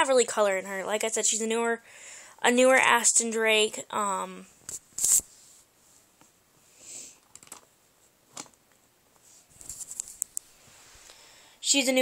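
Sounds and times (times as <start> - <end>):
soft rustling: 9.1 - 11.1.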